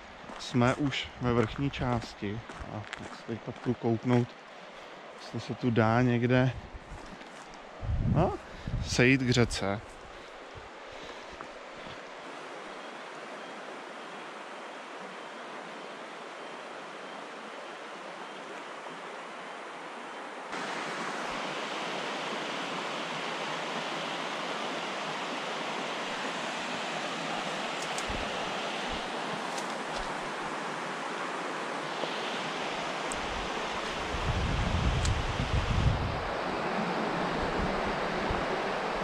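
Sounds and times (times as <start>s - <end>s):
rushing river water: 0.0s - 7.8s, 9.2s - 39.0s
low rumbles on microphone: 7.8s - 9.0s.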